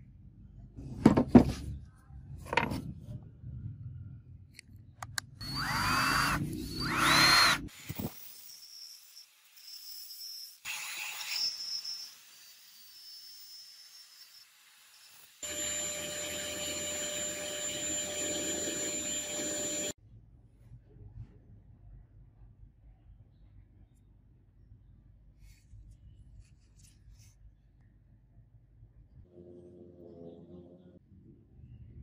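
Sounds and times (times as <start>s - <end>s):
cordless drill whining: 5.4s - 20.0s.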